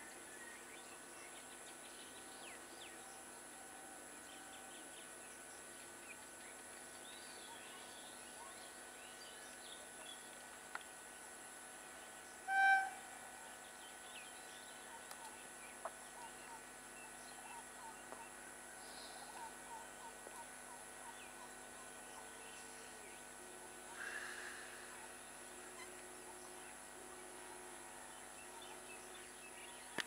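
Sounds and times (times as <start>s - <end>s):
insects: 0.0s - 30.0s
train horn blast: 12.4s - 13.2s
small birds chirping: 13.6s - 30.0s.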